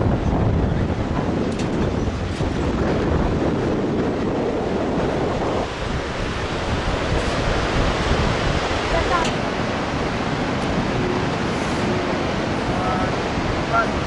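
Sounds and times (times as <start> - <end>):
wind buffeting microphone: 0.0 - 14.0
river whitewater rushing: 4.1 - 14.0.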